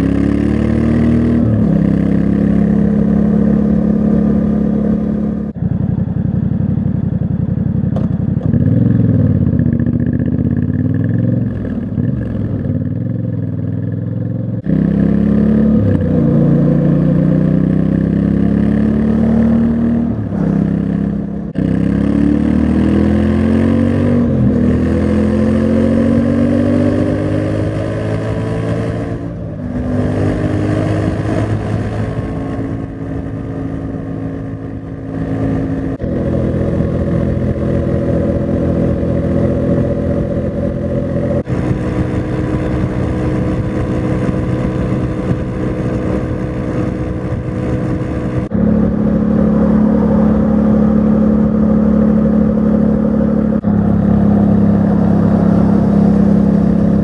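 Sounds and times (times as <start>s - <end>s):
motorcycle engine at speed: 0.0s - 57.0s.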